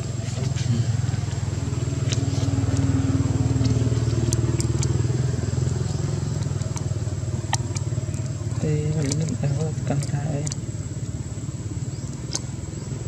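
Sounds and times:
vehicle engine droning: 0.0s - 13.0s
faint clicks: 3.6s - 10.6s.

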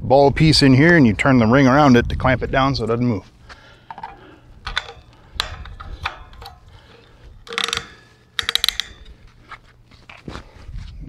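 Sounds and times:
clicks of mount tightening: 3.9s - 9.4s.

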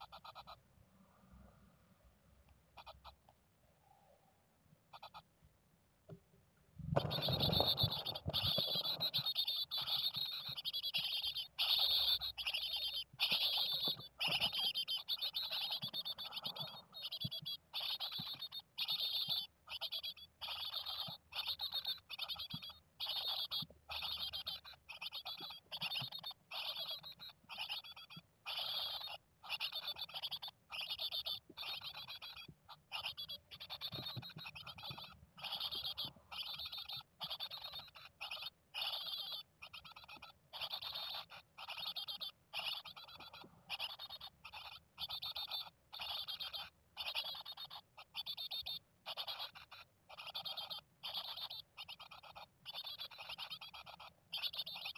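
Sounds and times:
nestlings raspy calls: 0.0s - 0.6s, 2.7s - 3.3s, 4.9s - 5.3s, 6.9s - 54.9s.

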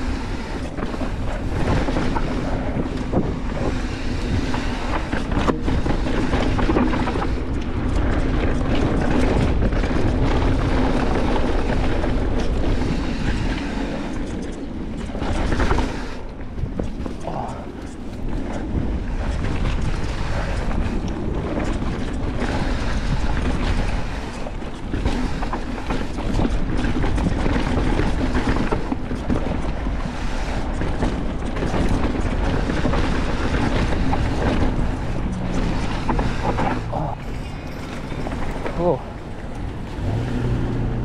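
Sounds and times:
bike rattling and knocking: 0.0s - 41.0s
bike tyres rumbling on dirt: 0.0s - 41.0s
wind on microphone: 0.0s - 41.0s.

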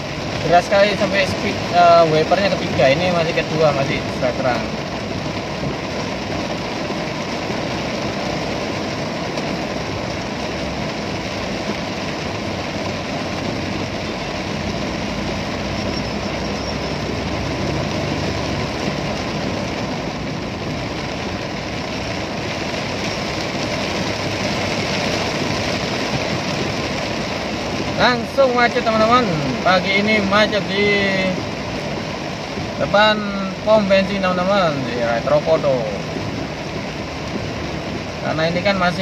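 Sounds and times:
rain on car roof: 0.0s - 39.0s.

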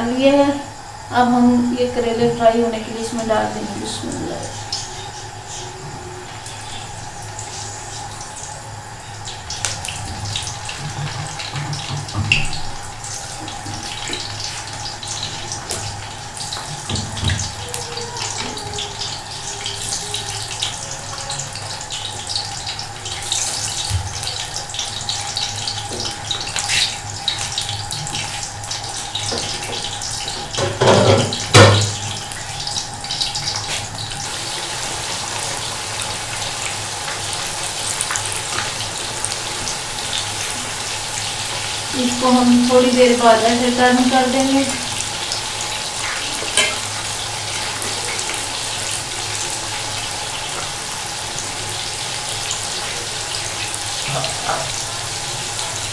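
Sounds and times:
food deep-frying in hot oil: 0.0s - 55.9s.

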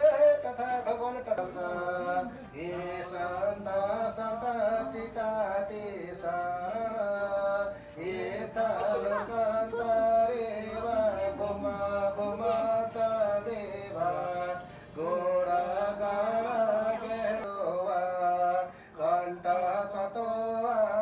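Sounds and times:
person chanting prayers: 0.0s - 21.0s.

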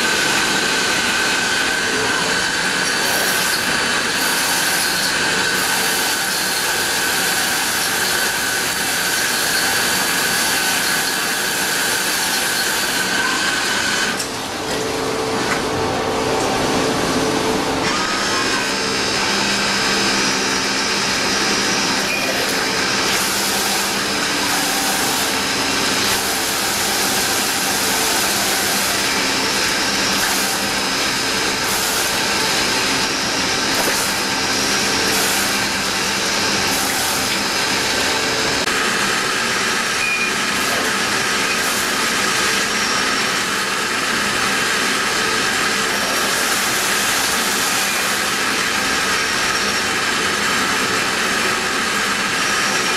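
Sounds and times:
high machining whine: 0.0s - 52.9s
lathe machine whir: 0.0s - 52.9s
coolant hiss: 22.2s - 38.3s.

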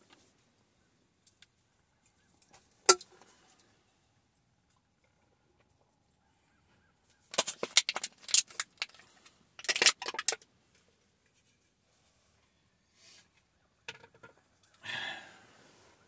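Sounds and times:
small hard objects clicking and rattling: 7.3s - 10.5s.

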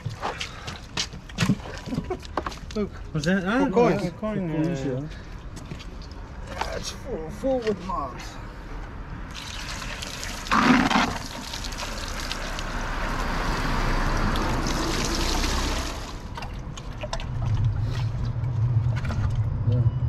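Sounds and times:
water pouring onto pavement: 9.3s - 19.6s
water splash: 9.3s - 19.6s.

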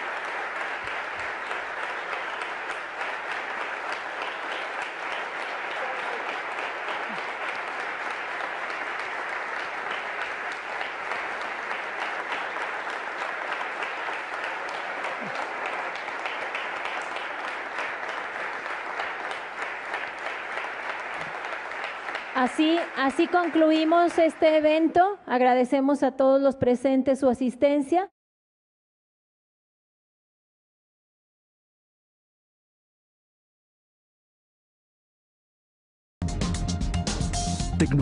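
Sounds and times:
large audience applauding: 0.0s - 25.0s.

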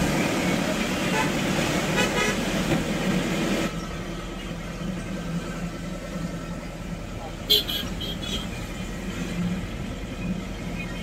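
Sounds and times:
traffic on wet road: 0.0s - 11.0s
car horn toot: 2.0s - 2.4s, 7.5s - 8.5s.

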